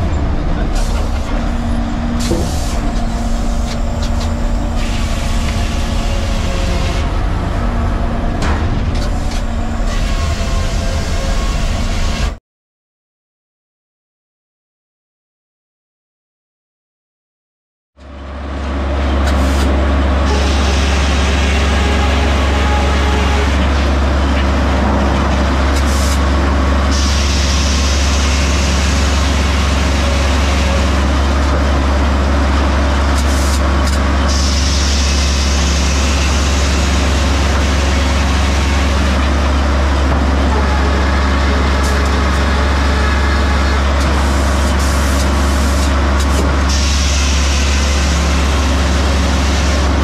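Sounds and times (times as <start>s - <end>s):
sawmill power unit drone: 0.0s - 12.4s, 18.0s - 50.0s
circular saw cutting log: 19.3s - 24.0s.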